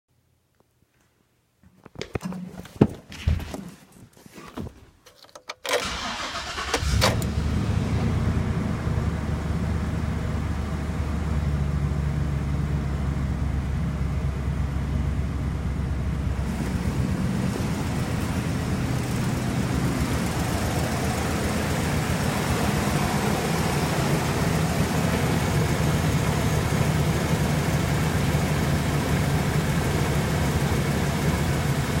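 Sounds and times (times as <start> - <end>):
engine starter cranking: 5.1 - 7.4
engine idling: 5.8 - 32.0.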